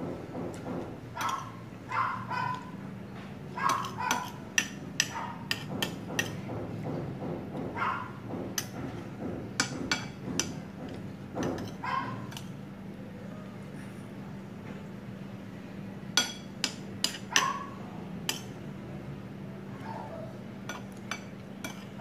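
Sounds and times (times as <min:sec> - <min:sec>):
dog yipping: 0:01.2 - 0:02.7, 0:03.6 - 0:04.4, 0:05.0 - 0:05.4, 0:07.8 - 0:08.2, 0:11.8 - 0:12.3, 0:17.3 - 0:17.8, 0:19.8 - 0:20.4
cutlery clinking on plates: 0:03.6 - 0:06.4, 0:20.6 - 0:22.0.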